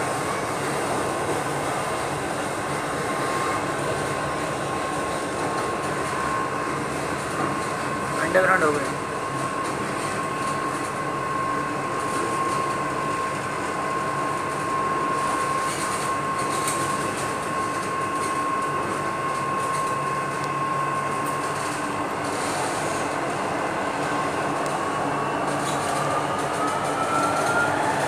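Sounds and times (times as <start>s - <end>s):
train drive whine: 0.0s - 28.0s
train rail rumble: 0.0s - 28.0s.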